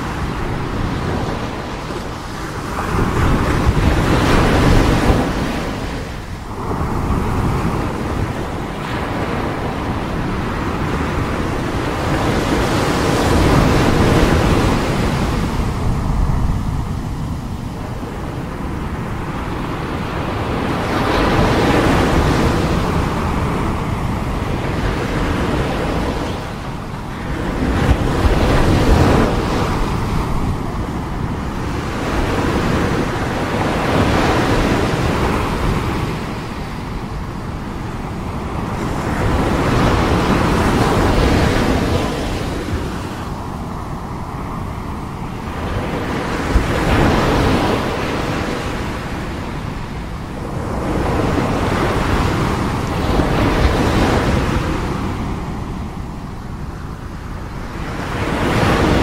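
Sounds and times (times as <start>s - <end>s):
waves breaking on shore: 0.0s - 59.0s.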